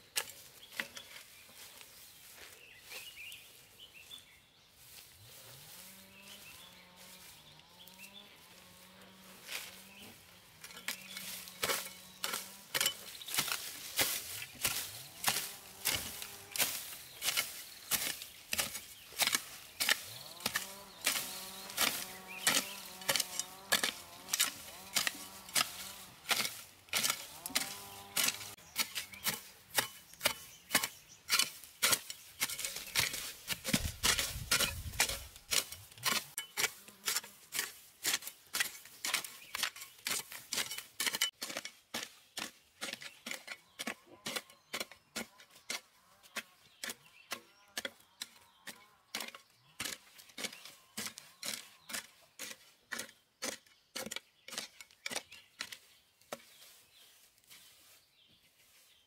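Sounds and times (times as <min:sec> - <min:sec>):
hoe chopping into soil: 0:10.6 - 0:45.3.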